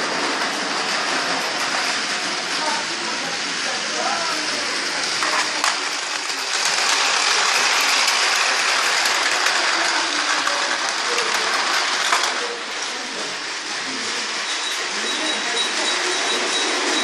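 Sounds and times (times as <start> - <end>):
toy train motor whirring: 0.1 - 17.0
toy train click: 4.3 - 17.0.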